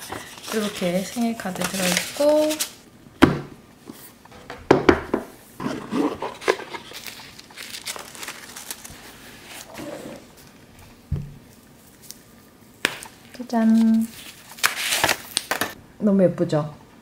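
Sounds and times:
wrapping paper rustling: 0.0 - 2.8, 5.9 - 9.8, 11.5 - 15.8.

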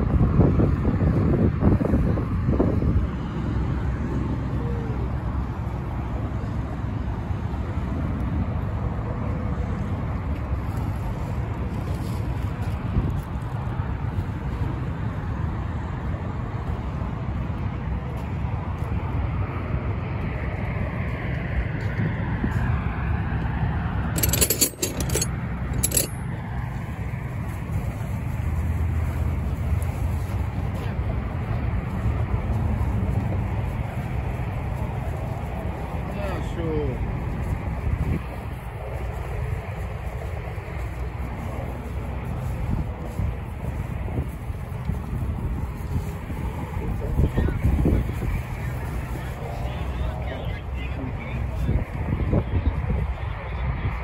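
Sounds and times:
low outdoor rumble: 0.0 - 54.0
metal objects jangling: 24.2 - 26.3.

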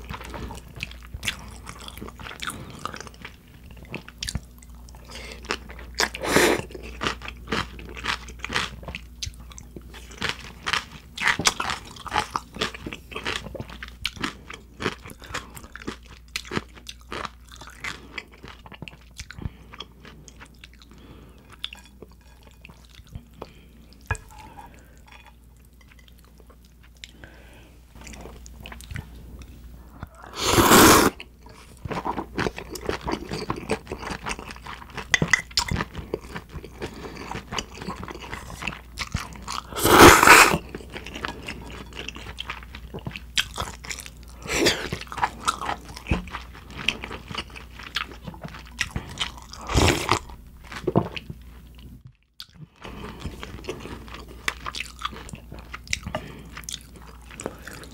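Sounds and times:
slurping noodles: 6.2 - 6.7, 30.1 - 31.2, 39.7 - 40.6.

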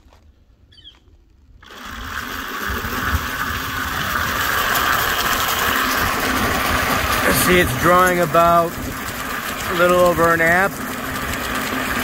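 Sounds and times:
electric motor whirring: 1.6 - 12.0.

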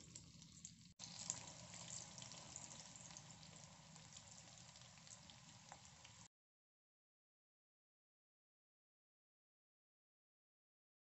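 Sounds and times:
food deep-frying in hot oil: 0.0 - 6.3.

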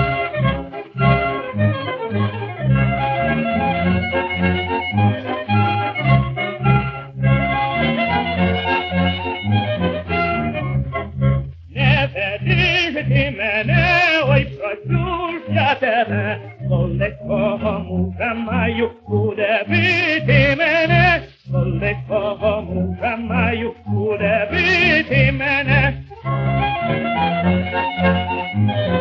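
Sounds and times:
orchestral accompaniment: 0.0 - 29.0
man singing with vibrato: 11.7 - 26.2.

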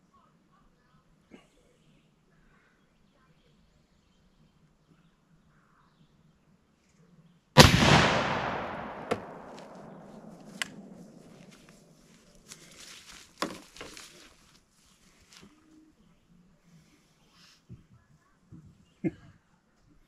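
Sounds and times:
rifle shot: 7.6 - 11.1.

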